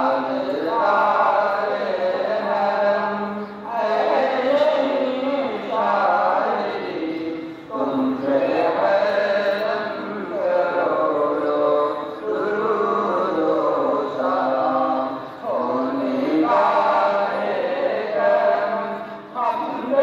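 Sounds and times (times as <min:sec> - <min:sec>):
men chanting: 0:00.0 - 0:20.0.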